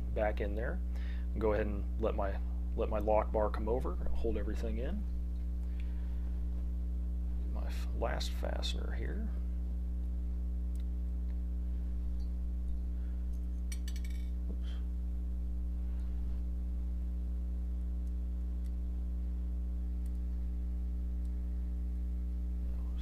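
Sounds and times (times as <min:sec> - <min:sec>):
low electrical hum: 0:00.0 - 0:23.0
small metal parts clicking: 0:13.6 - 0:14.3.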